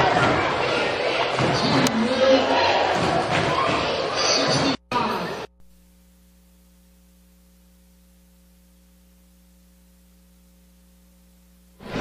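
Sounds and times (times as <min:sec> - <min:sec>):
electrical mains hum: 0:04.6 - 0:12.0.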